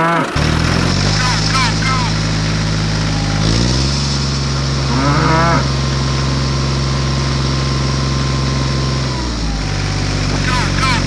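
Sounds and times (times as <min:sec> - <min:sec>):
tractor engine running: 0:00.0 - 0:11.0
cow mooing: 0:04.9 - 0:05.7.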